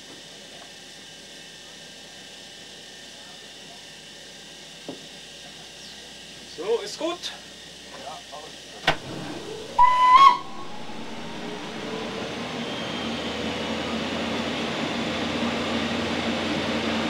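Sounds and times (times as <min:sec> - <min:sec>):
electric locomotive hum: 0:08.8 - 0:17.0
whistle blast: 0:08.9 - 0:13.9.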